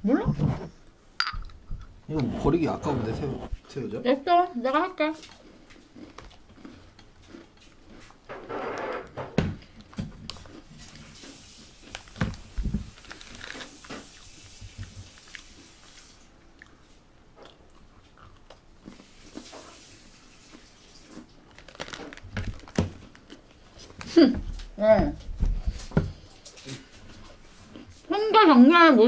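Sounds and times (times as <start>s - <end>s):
crunchy bites and chewing: 5.2s - 9.0s, 21.0s - 23.5s.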